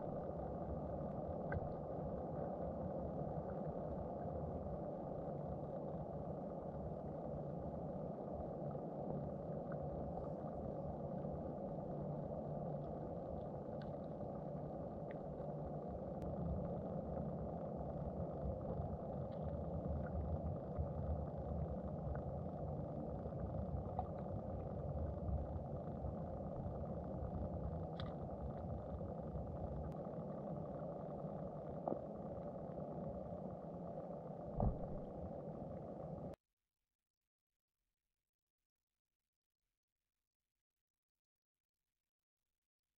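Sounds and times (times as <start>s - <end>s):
muffled underwater rumble: 0.0s - 36.4s
faint ticks: 1.4s - 1.9s, 12.8s - 14.3s, 15.0s - 15.5s, 27.9s - 28.8s.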